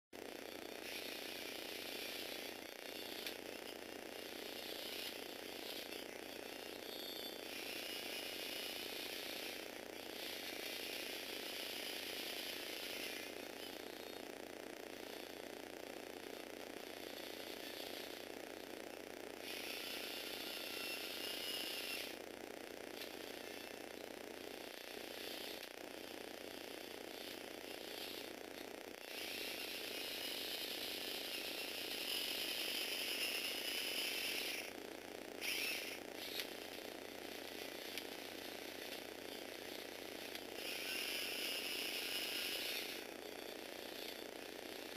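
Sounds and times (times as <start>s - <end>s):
toy vehicle gears whirring: 0.4s - 14.4s, 15.0s - 18.6s, 19.3s - 22.3s, 22.9s - 44.9s
click: 3.2s - 3.4s, 36.3s - 36.5s, 37.9s - 38.1s.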